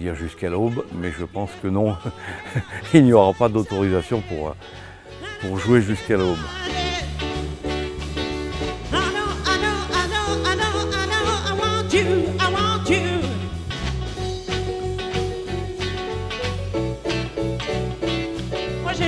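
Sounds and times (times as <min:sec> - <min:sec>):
person singing with vibrato: 0:00.5 - 0:07.4, 0:08.8 - 0:14.6, 0:18.7 - 0:19.0
live band playing dance music: 0:02.9 - 0:19.0.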